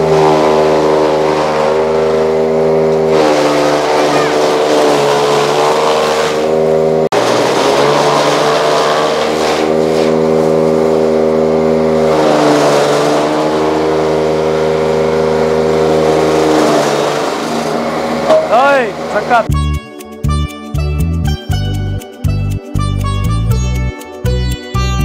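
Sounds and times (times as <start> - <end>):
machine motor running under load: 0.0 - 19.5.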